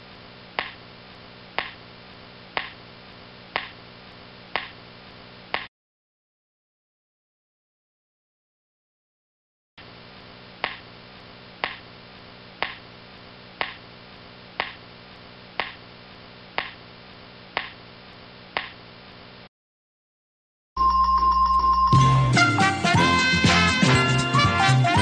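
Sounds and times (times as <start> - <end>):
steady low hum: 0.0 - 5.7, 9.8 - 19.5.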